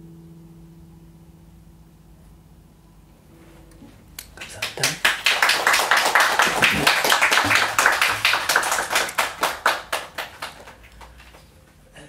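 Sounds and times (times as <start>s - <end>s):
small audience applauding: 4.2s - 11.8s.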